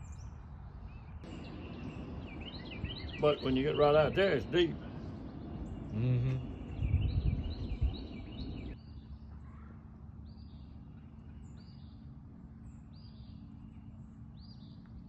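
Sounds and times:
songbird calling: 0:00.0 - 0:12.0
faint hum: 0:00.0 - 0:15.0
low background rumble: 0:01.2 - 0:15.0.

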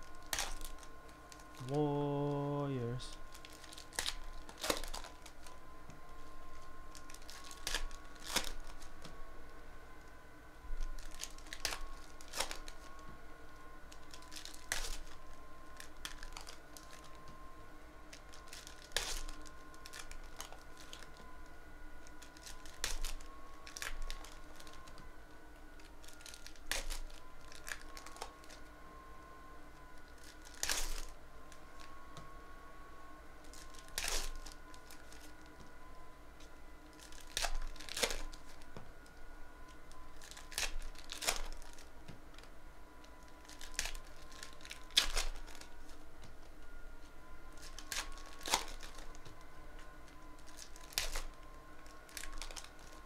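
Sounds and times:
plastic foil wrappers tearing and crinkling: 0:00.0 - 0:05.6, 0:06.2 - 0:09.1, 0:10.7 - 0:13.0, 0:13.9 - 0:17.3, 0:18.0 - 0:21.3, 0:22.0 - 0:25.1, 0:25.8 - 0:28.7, 0:30.0 - 0:31.9, 0:33.4 - 0:35.7, 0:36.8 - 0:38.7, 0:39.7 - 0:46.1, 0:47.5 - 0:49.4, 0:50.0 - 0:53.0.

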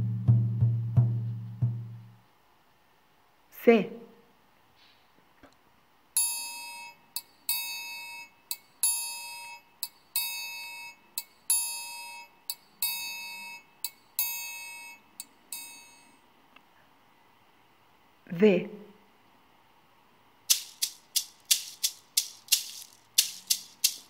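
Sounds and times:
triangle ringing strokes: 0:06.2 - 0:16.3, 0:20.5 - 0:24.0.

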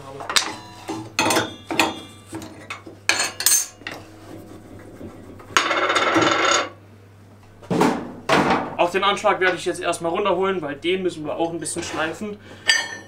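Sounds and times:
metallic scraping and rattling: 0:00.3 - 0:06.8.

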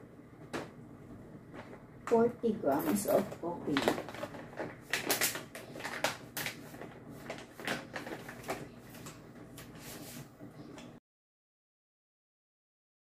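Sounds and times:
plastic bag rustling: 0:02.6 - 0:10.3.

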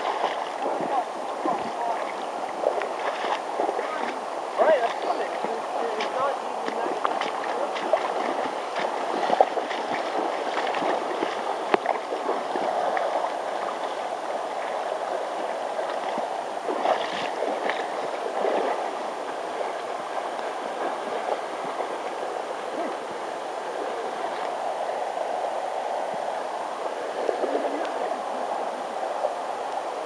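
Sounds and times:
clicks and small splashes: 0:00.0 - 0:13.9
river water rushing: 0:00.0 - 0:30.0.

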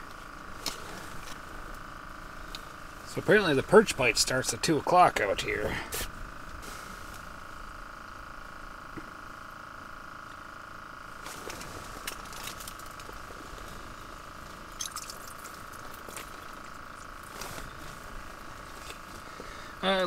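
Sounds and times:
steady high hum: 0:00.0 - 0:20.0
fishing reel clicks and rustles: 0:11.2 - 0:13.8.

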